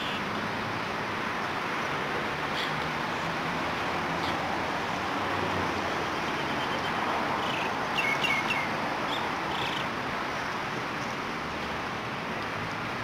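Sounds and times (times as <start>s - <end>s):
outdoor background hiss: 0.0s - 13.0s
bird chirping: 6.2s - 9.8s.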